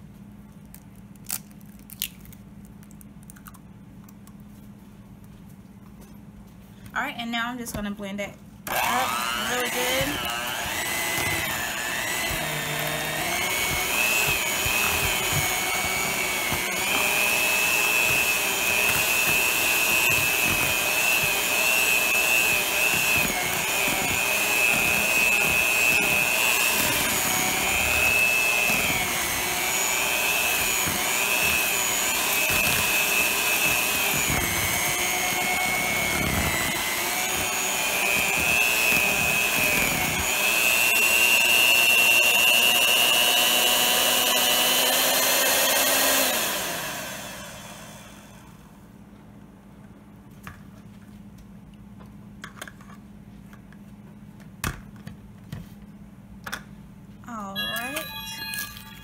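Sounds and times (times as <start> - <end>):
electric hand mixer whining: 8.7 - 48.6.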